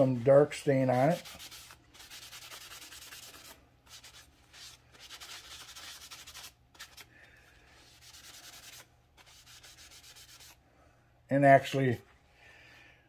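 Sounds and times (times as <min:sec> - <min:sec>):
paper towel rubbing wood: 0:01.1 - 0:07.0, 0:07.8 - 0:10.6.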